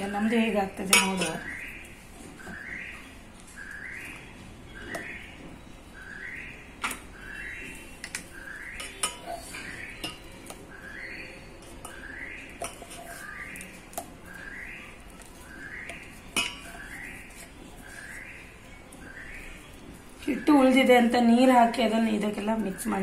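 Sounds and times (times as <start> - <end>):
metal spoon scraping steel bowl: 12.6 - 14.0.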